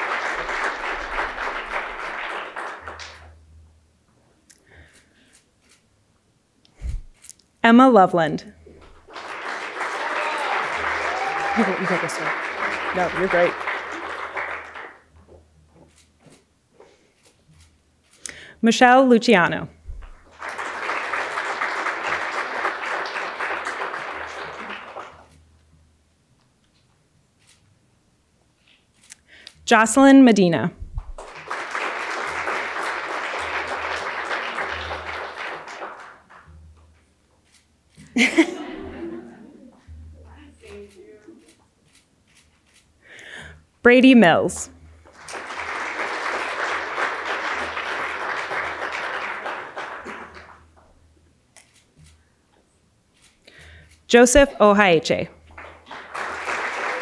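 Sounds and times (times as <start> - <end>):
audience applauding: 0.0 - 3.4, 8.8 - 15.2, 20.0 - 25.4, 31.1 - 36.6, 45.0 - 50.8, 55.4 - 57.0.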